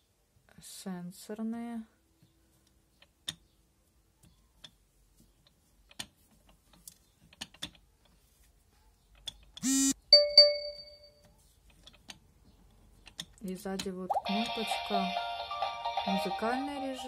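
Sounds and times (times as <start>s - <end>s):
short electronic tone: 9.6s - 10.0s
bright ringing chime: 10.1s - 11.2s.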